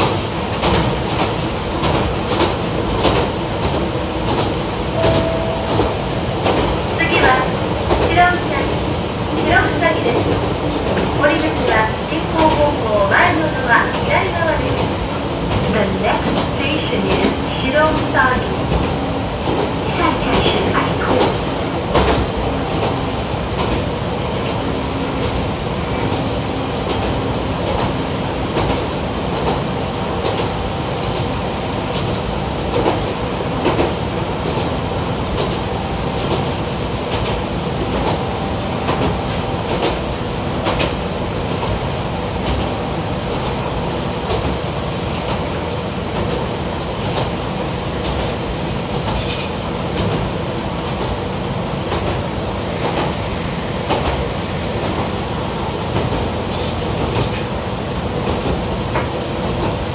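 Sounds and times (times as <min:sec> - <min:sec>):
railcar engine and wheels drone: 0:00.0 - 0:59.9.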